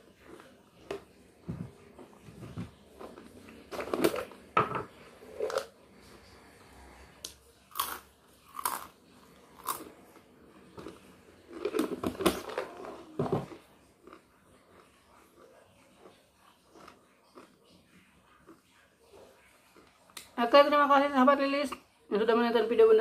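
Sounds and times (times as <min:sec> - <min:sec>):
crisp food crunching: 0:07.7 - 0:18.6.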